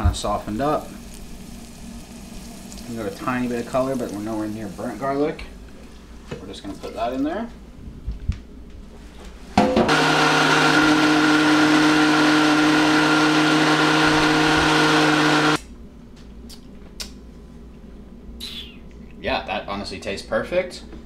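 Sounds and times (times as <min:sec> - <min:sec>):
countertop blender running: 0:09.7 - 0:15.6.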